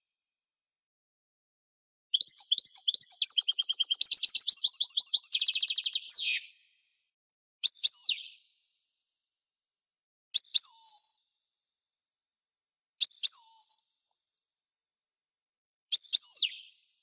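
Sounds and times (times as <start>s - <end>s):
goldfinch singing: 2.2s - 6.4s.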